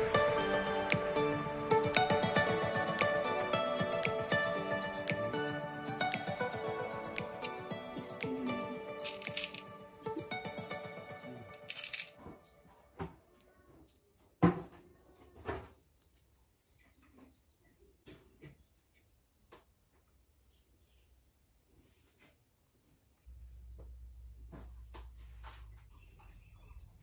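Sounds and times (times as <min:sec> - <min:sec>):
high-pitched cricket-like trill: 0:05.4 - 0:14.5, 0:20.2 - 0:22.0.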